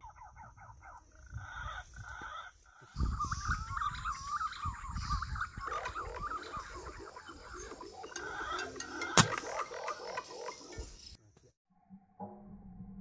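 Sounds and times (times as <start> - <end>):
birds chirping chorus: 0.0 - 11.2.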